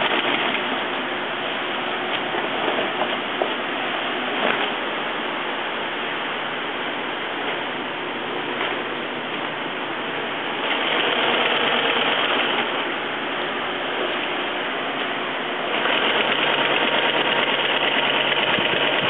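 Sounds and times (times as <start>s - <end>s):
sewing machine whirring: 0.0s - 0.8s, 10.5s - 12.8s, 15.7s - 19.0s.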